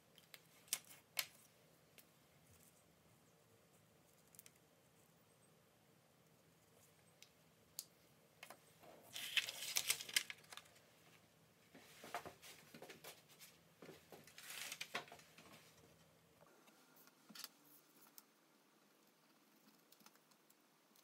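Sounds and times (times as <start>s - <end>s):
paper rustling: 9.0s - 10.8s, 12.0s - 15.7s.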